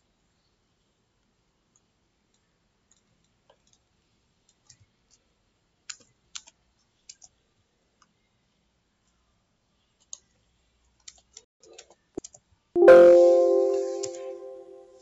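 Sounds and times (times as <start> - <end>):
computer mouse clicks: 5.8 - 7.4, 11.0 - 12.4.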